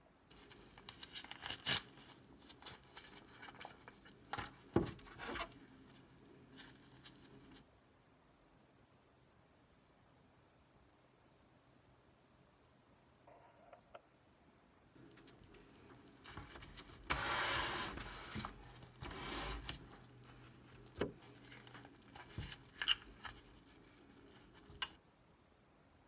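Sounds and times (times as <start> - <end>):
microscope sliding on wooden table: 16.8 - 20.4.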